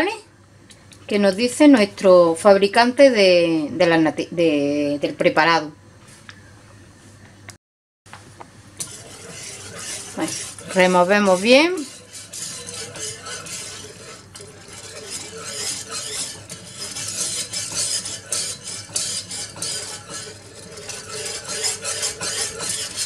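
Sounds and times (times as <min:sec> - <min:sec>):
whisk scraping a saucepan: 0:08.8 - 0:23.0.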